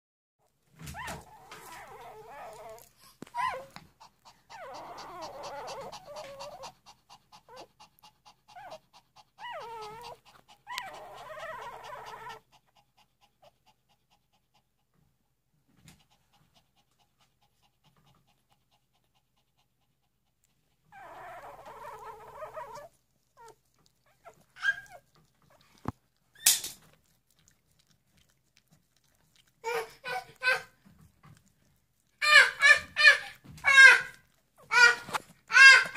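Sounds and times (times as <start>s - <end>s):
puppies whimpering and squeaking: 0.8s - 12.5s, 20.8s - 27.6s, 29.0s - 35.9s.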